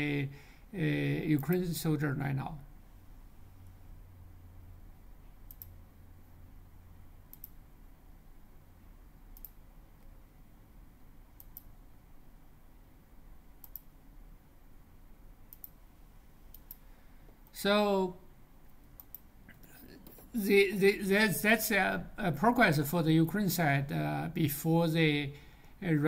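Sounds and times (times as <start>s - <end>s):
faint low hum: 0.0s - 26.0s
computer mouse clicking: 5.5s - 5.8s, 7.3s - 7.6s, 9.4s - 10.1s, 11.4s - 11.8s, 13.6s - 13.9s, 15.5s - 15.8s, 16.5s - 17.5s, 18.8s - 20.2s.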